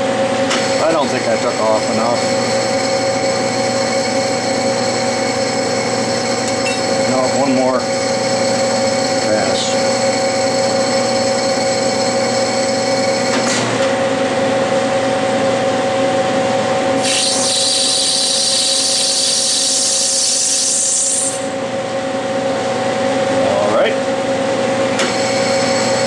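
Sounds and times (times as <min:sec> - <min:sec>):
metal lathe running: 0:00.0 - 0:15.4, 0:16.3 - 0:23.0, 0:24.6 - 0:26.0
lathe tool cutting hiss: 0:17.0 - 0:21.6.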